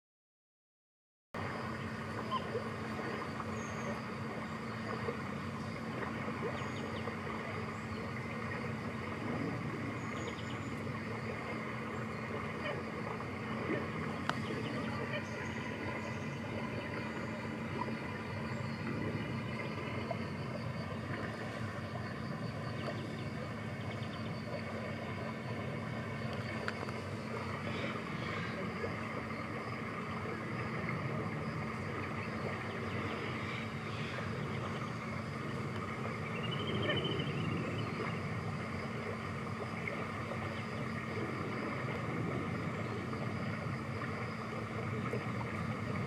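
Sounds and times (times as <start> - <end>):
constant low hum: 1.4 - 46.0
faint high buzz: 1.4 - 46.0
faint ticks: 14.2 - 14.8, 22.7 - 23.2, 26.2 - 28.5, 35.7 - 36.0.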